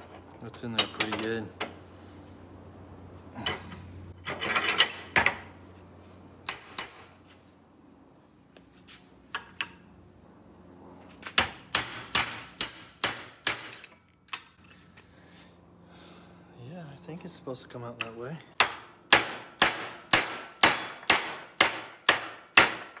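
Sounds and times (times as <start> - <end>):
metal punch clinking and scraping: 3.4 - 5.5, 13.6 - 14.9.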